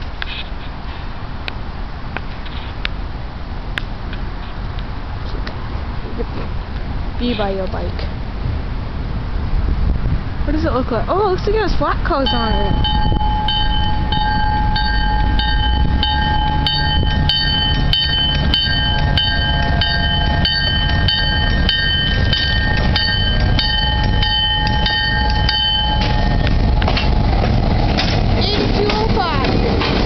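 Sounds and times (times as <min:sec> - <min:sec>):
engine and wheels rumbling: 0:00.0 - 0:30.0
bell ringing: 0:12.2 - 0:26.5.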